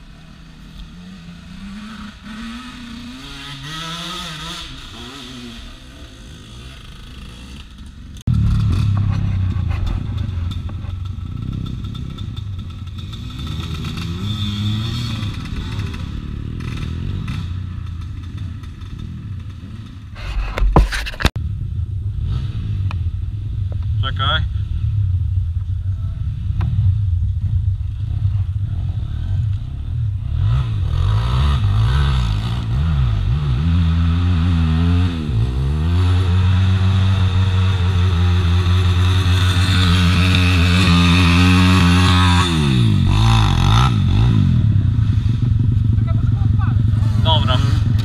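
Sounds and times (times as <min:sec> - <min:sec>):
dirt bike engines revving: 0:00.0 - 0:20.5, 0:21.5 - 0:48.0.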